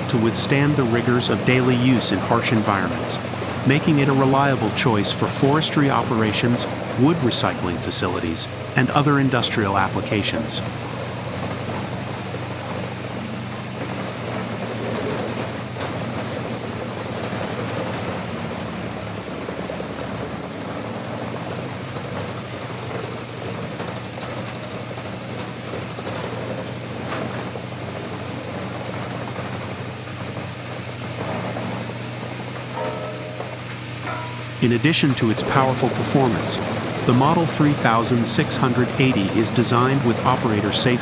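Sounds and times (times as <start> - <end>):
wood grinder engine hum: 0.0 - 41.0
wood crackling and crunching: 10.7 - 34.6.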